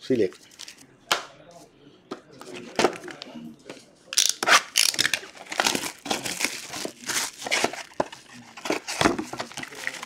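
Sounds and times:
plastic wrapping crinkling and tearing: 4.2 - 10.0.

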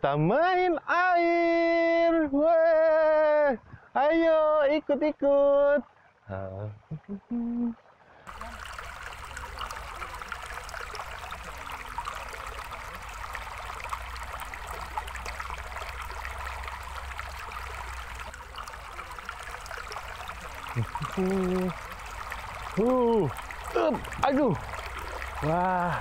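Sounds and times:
stream trickling over stones: 5.2 - 26.0.

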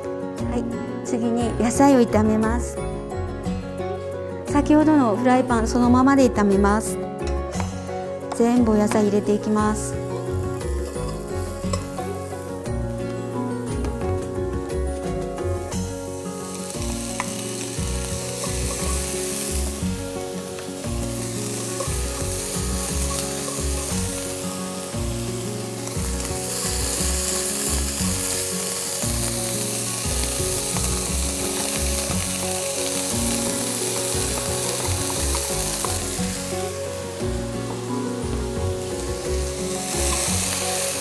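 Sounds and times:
background music with steady beat: 0.0 - 41.0
vegetables sizzling in a wok: 8.8 - 13.7, 15.1 - 41.0.

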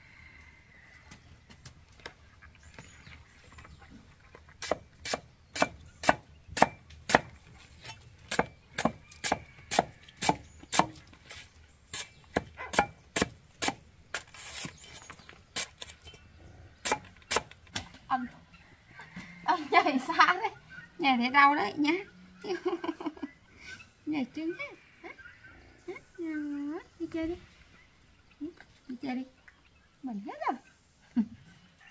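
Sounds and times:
cleaver chopping on wood: 4.6 - 7.4, 8.2 - 11.1, 12.0 - 14.8, 16.8 - 17.9.

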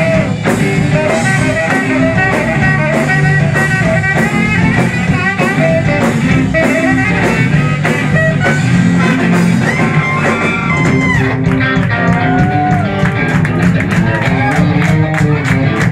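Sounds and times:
saxophone long notes: 0.0 - 11.5
bass: 0.0 - 15.9
drums steady beat: 0.0 - 15.9
electric guitar: 0.0 - 15.9.

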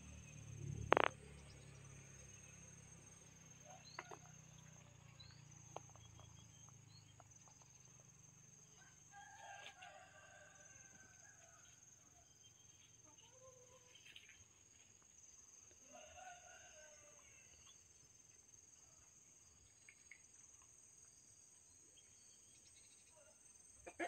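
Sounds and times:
small chirps and clicks: 0.8 - 1.6, 3.9 - 8.0, 19.7 - 20.8
rooster crowing faintly: 8.7 - 12.4.

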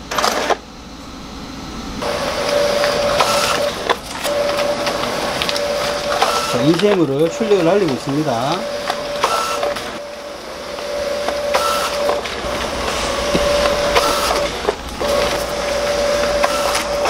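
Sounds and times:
printer mechanical hum: 0.0 - 17.0
paper feed rush: 2.0 - 17.0.

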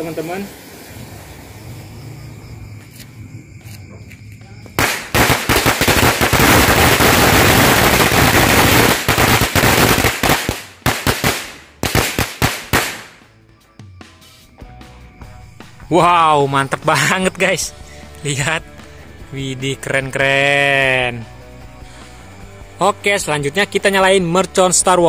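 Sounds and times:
firecrackers crackling bangs: 4.8 - 13.2.

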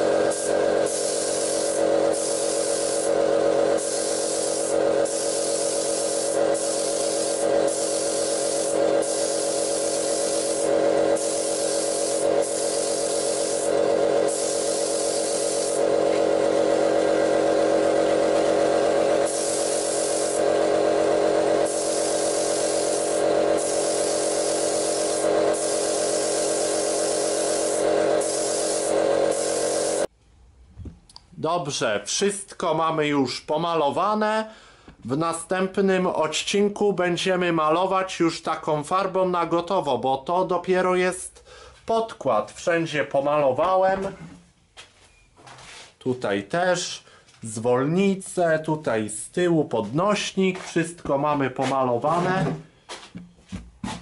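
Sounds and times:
air compressor humming: 0.0 - 30.1
air spray gun hissing: 0.0 - 30.1.

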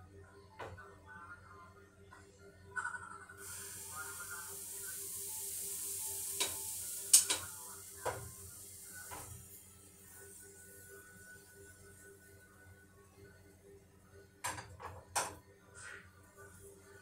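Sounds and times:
batter sizzling in a frying pan: 3.4 - 12.1.

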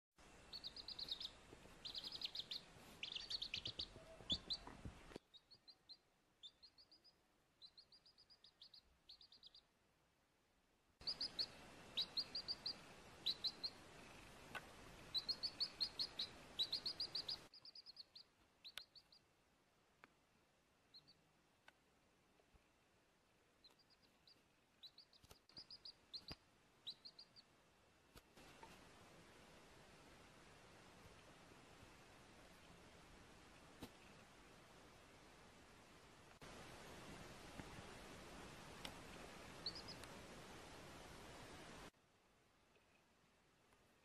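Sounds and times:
faint steady hiss: 0.2 - 44.0
chick peeping: 0.5 - 9.7, 11.0 - 19.2, 20.9 - 21.2, 23.6 - 27.5, 39.6 - 40.1.

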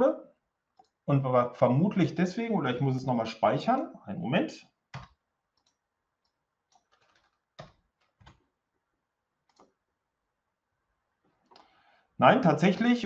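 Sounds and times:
computer keyboard keystrokes: 4.9 - 5.8, 6.7 - 8.4, 9.5 - 9.7.

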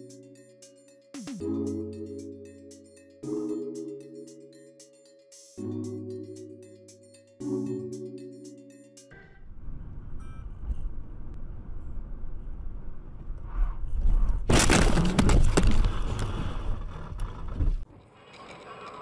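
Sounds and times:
clattering and cracking debris: 14.5 - 16.8.

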